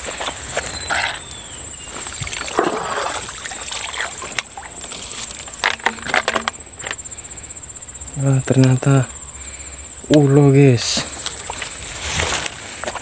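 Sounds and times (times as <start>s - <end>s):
rustling and splashing in water: 0.0s - 7.0s, 10.9s - 13.0s
insect trill: 0.0s - 13.0s.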